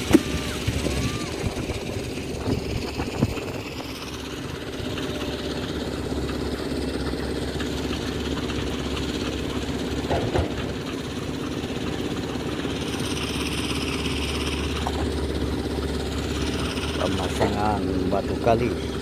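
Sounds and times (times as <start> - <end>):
engine running: 0.0 - 19.0.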